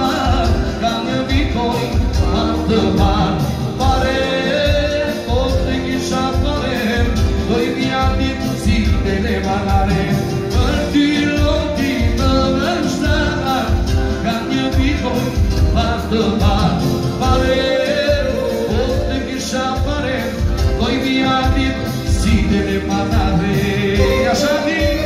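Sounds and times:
keyboard backing with beat: 0:00.0 - 0:25.0
man singing into a microphone: 0:00.0 - 0:25.0.

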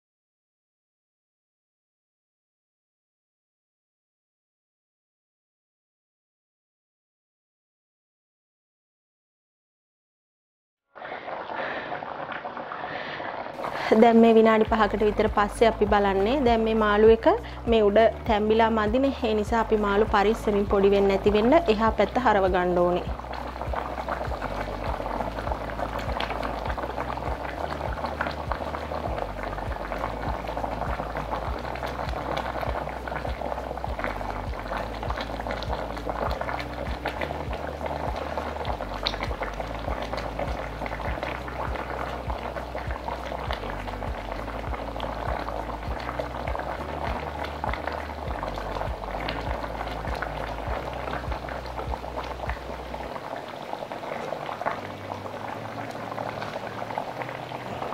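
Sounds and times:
curry bubbling in pot: 0:11.0 - 0:57.9
background music beat: 0:14.6 - 0:53.3.

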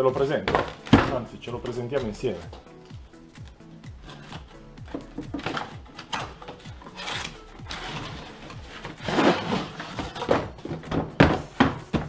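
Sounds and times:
background music: 0:00.0 - 0:12.0
cardboard box scraping and rustling: 0:06.5 - 0:10.9.

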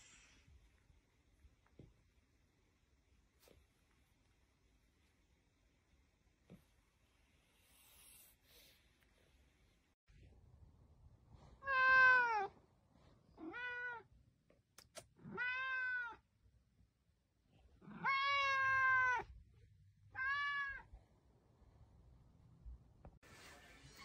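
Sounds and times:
cat meowing: 0:11.6 - 0:12.5, 0:13.4 - 0:14.1, 0:15.2 - 0:16.2, 0:17.8 - 0:19.3, 0:20.1 - 0:20.9.

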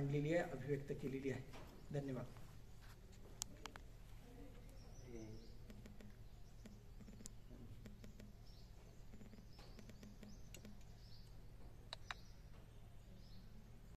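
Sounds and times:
low steady hum: 0:00.0 - 0:13.9
small sharp clicks: 0:05.6 - 0:12.3
short bird-like chirps: 0:08.0 - 0:12.5.

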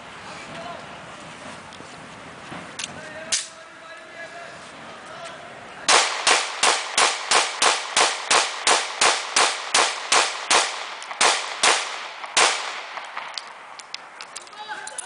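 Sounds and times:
pistol shots: 0:05.9 - 0:14.0.

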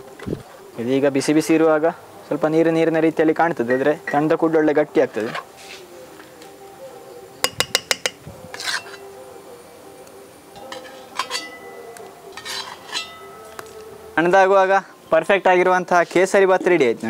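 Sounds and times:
ladle scraping pan: 0:08.5 - 0:09.1, 0:10.6 - 0:13.3
metal ladle clinking on steel bowl: 0:10.6 - 0:11.8.

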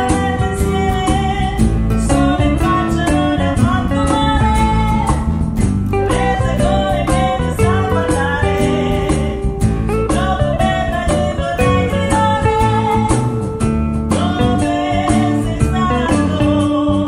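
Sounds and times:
percussion beat: 0:00.0 - 0:17.0
strummed acoustic guitars: 0:00.0 - 0:17.0
woman singing: 0:00.0 - 0:17.0.

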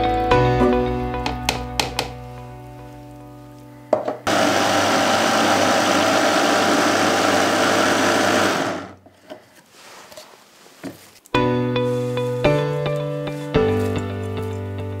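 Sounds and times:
food processor motor chopping: 0:04.3 - 0:09.0.

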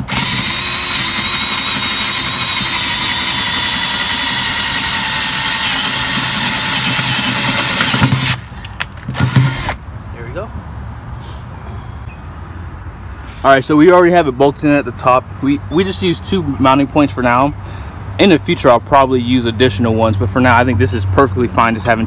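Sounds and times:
cordless drill boring metal: 0:00.0 - 0:08.4, 0:09.2 - 0:09.8.

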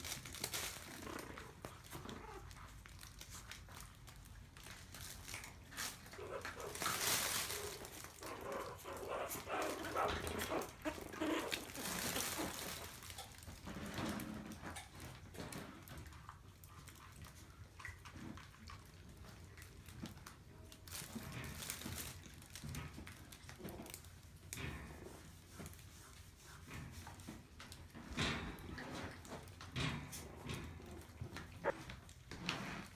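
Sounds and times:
paws scuffling: 0:00.0 - 0:13.8
fabric play tunnel rustling: 0:00.0 - 0:14.4.

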